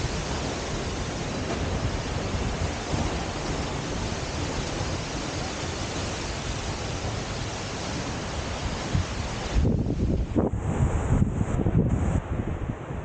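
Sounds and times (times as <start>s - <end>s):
waterfall rushing: 0.0s - 10.7s.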